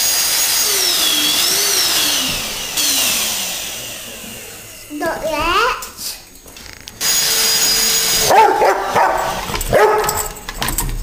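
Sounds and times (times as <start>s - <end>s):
whirring motor hiss: 0.0s - 5.0s
dog barking and yipping: 8.2s - 10.4s.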